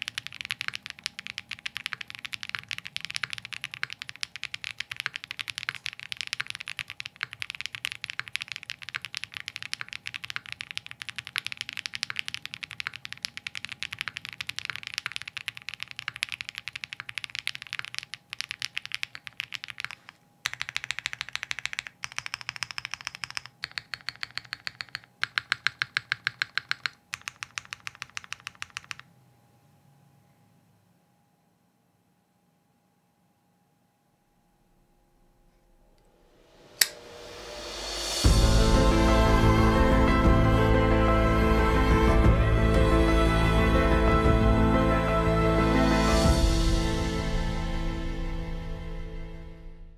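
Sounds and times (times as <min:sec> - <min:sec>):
mechanical keyboard typing: 0:00.0 - 0:29.1.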